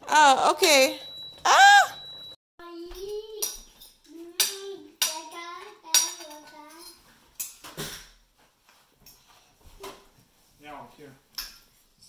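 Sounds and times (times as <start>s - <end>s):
child singing wordless tune: 2.6s - 6.9s.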